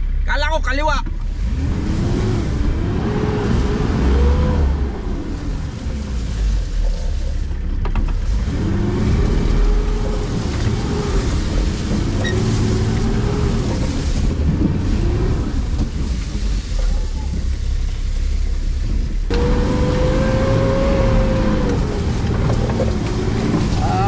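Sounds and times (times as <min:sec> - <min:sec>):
off-road engine revving: 0:00.0 - 0:24.0.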